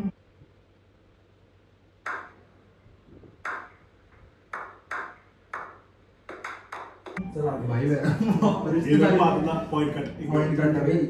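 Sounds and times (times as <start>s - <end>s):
men clapping slowly: 4.6s - 7.2s.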